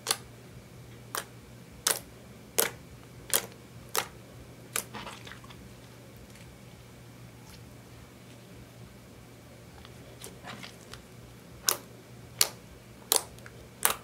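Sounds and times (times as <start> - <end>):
slime clicking: 1.1 - 4.1, 11.6 - 14.0
faint slime crackles: 9.8 - 11.8.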